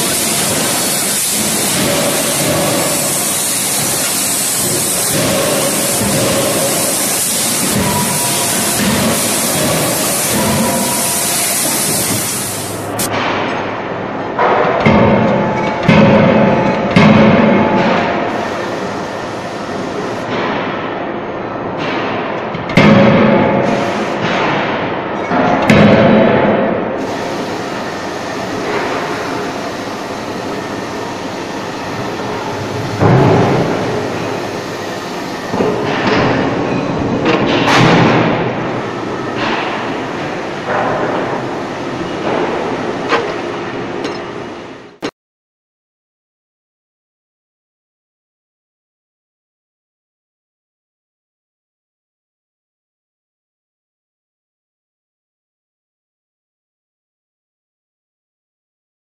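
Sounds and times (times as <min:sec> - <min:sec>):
loud hissing of forge machinery: 0:00.0 - 0:13.1, 0:17.8 - 0:20.3, 0:23.6 - 0:24.4, 0:27.0 - 0:43.4.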